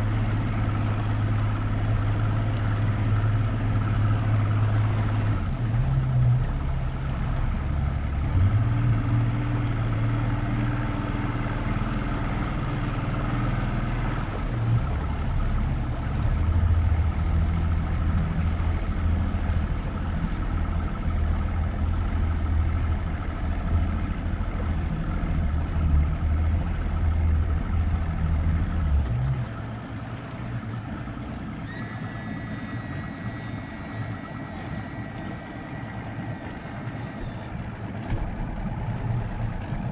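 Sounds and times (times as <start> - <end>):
motorboat engine humming: 0.0 - 39.9
water and wind hiss: 0.0 - 39.9
thin high tone: 31.6 - 37.5.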